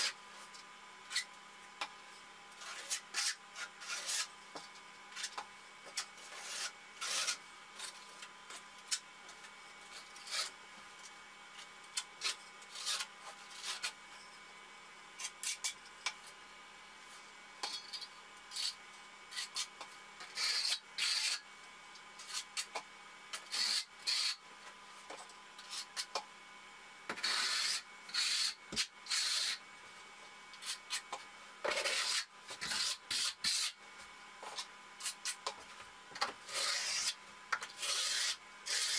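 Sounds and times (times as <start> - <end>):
trowel scraping mortar: 2.6 - 4.3, 5.2 - 8.3, 12.2 - 14.0, 17.6 - 21.4, 23.4 - 24.4, 27.1 - 29.6, 31.6 - 33.8, 36.2 - 38.9.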